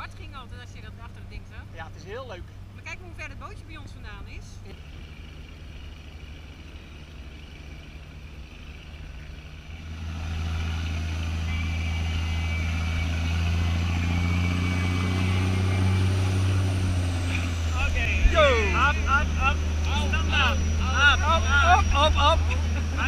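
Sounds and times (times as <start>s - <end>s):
speedboat engine drone: 4.2s - 23.0s.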